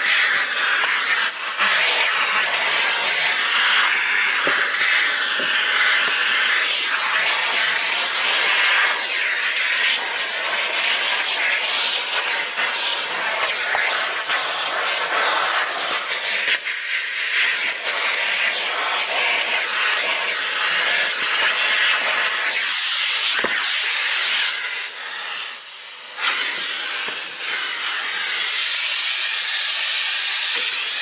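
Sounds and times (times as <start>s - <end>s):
vacuum cleaner running: 0.0s - 31.0s.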